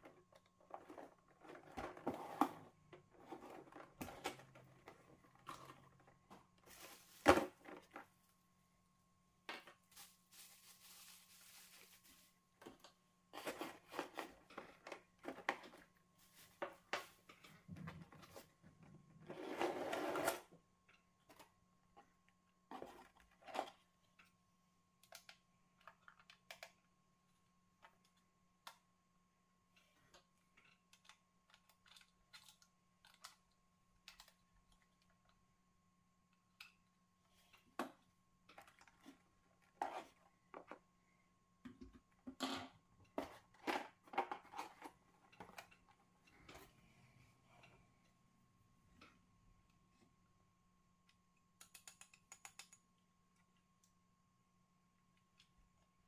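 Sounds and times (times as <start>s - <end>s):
packaging rustle: 9.9s - 12.4s.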